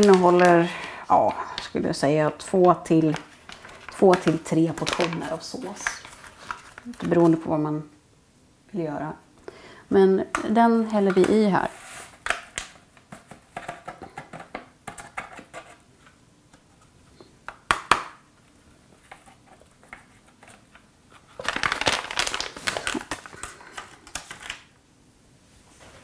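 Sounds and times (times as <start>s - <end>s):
sauce packet crinkling: 0.0s - 1.7s, 2.8s - 7.2s, 21.3s - 24.7s.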